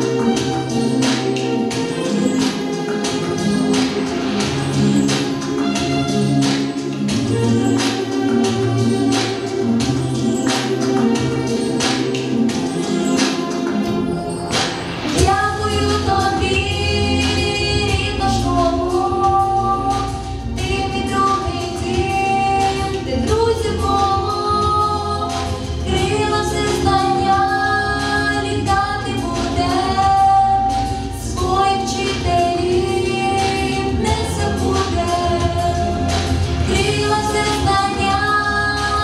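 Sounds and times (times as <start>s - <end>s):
instrumental accompaniment: 0.0s - 39.0s
girl singing into microphone: 15.2s - 39.0s.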